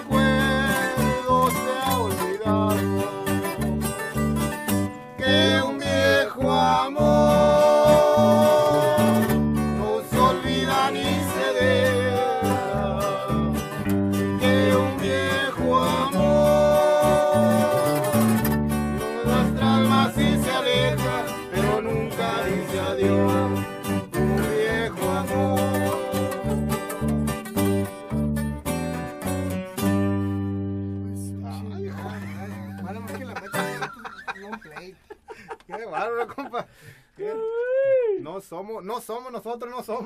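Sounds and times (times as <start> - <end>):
man singing: 0.0 - 4.0, 5.2 - 27.2
acoustic guitars strummed and picked: 0.0 - 34.8.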